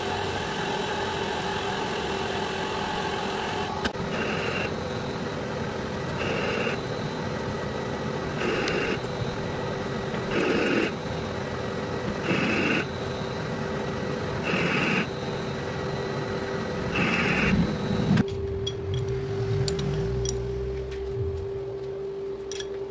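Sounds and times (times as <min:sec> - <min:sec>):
lathe machine hum: 0:00.0 - 0:18.3
metal cutting bursts: 0:08.2 - 0:13.1, 0:14.2 - 0:15.4, 0:16.7 - 0:18.2.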